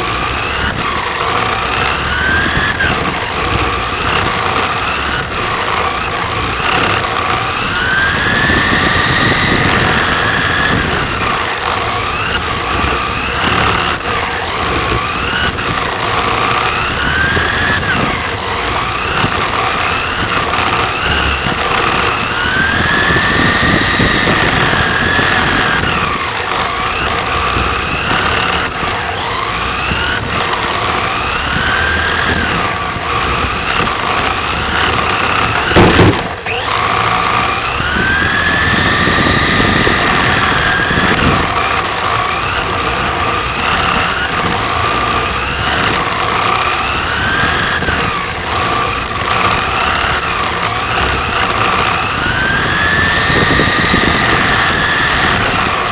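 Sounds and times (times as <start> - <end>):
toy car motor whining: 0.0 - 55.9.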